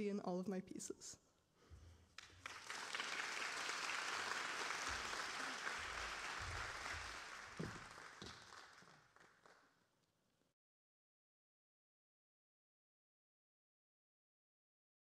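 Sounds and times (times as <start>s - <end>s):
audience applauding: 2.2s - 9.7s.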